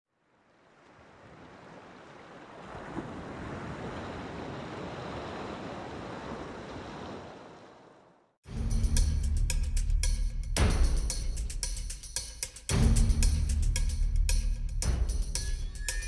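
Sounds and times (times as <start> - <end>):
wind: 0.1 - 11.7.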